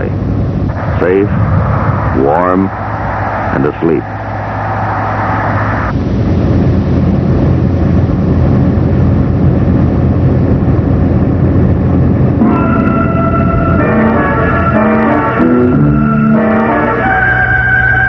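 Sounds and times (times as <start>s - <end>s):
road noise: 0.0s - 18.0s
truck engine rumble: 0.0s - 18.0s
music: 12.4s - 18.0s.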